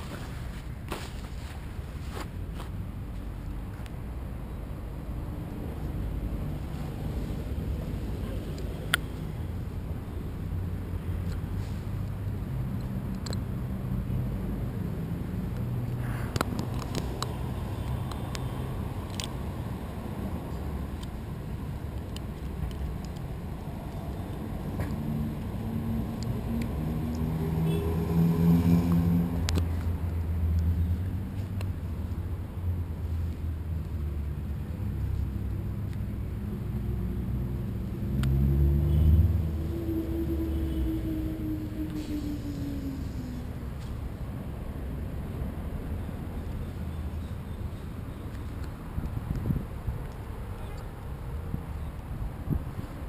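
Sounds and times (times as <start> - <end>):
engine passing by: 22.6 - 46.9
wind rumble on microphone: 48.9 - 50.4, 51.4 - 53.0
wind buffeting microphone: 49.0 - 50.1.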